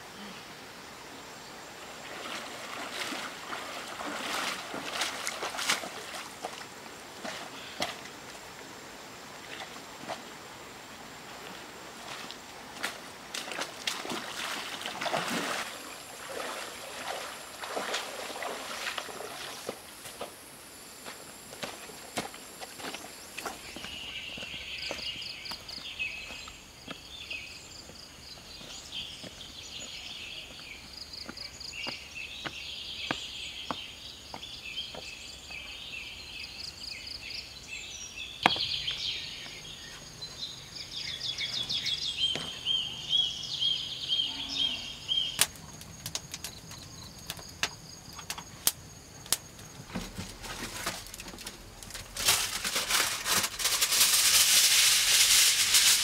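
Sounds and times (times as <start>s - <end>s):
footsteps: 21.0s - 27.0s
birds chirping and singing: 22.8s - 45.4s.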